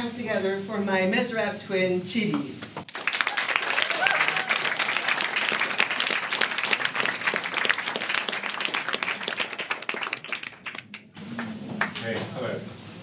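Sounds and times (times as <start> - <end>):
audience applauding: 2.9 - 12.0.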